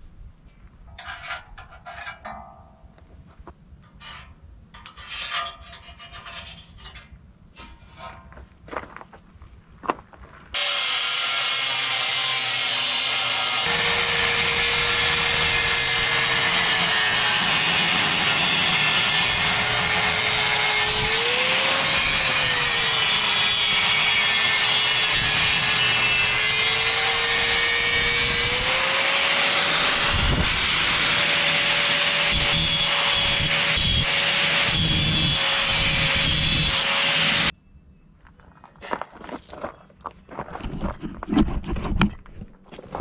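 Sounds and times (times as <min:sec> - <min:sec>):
angle grinder cutting steel: 0:10.6 - 0:37.5.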